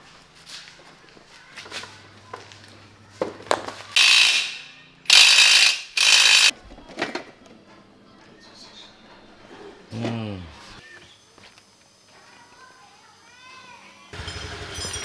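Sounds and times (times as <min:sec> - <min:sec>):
pneumatic impact wrench rattling: 0:04.0 - 0:06.5.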